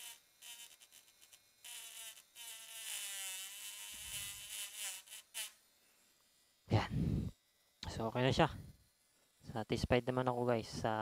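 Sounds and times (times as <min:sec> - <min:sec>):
small motor whining: 0:00.0 - 0:05.8.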